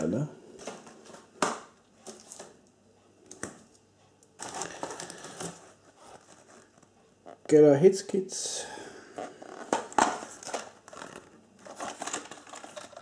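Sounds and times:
cardboard and plastic rustling: 0.6s - 2.6s, 4.4s - 7.4s, 9.2s - 13.0s.

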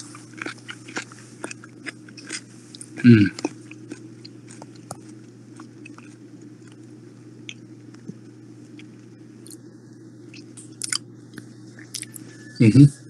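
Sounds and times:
person chewing crunchy snacks: 0.0s - 7.7s, 10.3s - 12.2s
steady low hum: 0.0s - 13.0s.

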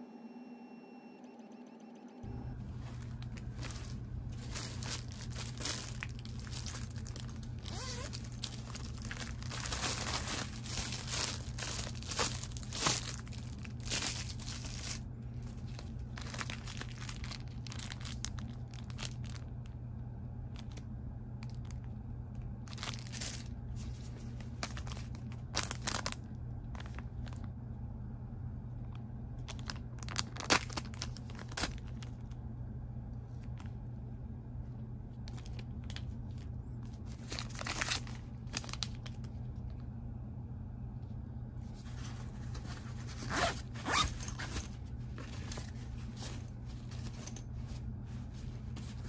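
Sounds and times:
low steady hum: 0.0s - 49.0s
rustling and crinkling packet: 2.6s - 19.8s, 20.5s - 20.8s, 21.4s - 27.5s, 29.4s - 32.4s, 35.2s - 39.8s, 41.6s - 49.0s.

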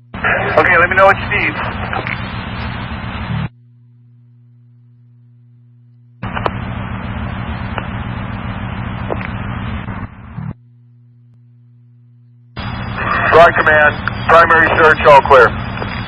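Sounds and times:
low steady hum: 0.0s - 16.0s
loud rushing radio static: 0.1s - 3.5s, 6.2s - 10.5s, 12.6s - 16.0s.

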